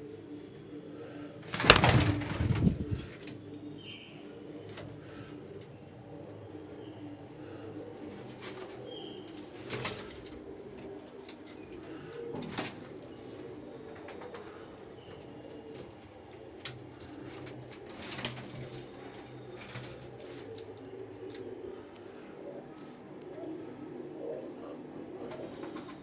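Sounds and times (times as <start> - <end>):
pigeons cooing: 0.0 - 26.0.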